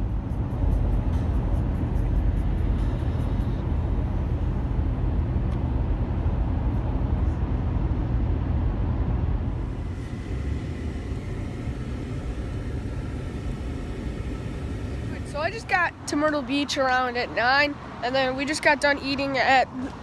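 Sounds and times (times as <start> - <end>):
car interior road noise: 0.0 - 20.0
roadside traffic noise: 0.0 - 20.0.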